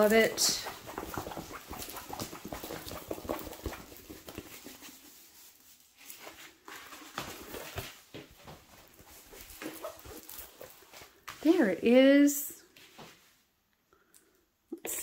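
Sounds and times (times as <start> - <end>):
canvas and plastic sheet crinkling: 0.0 - 11.7.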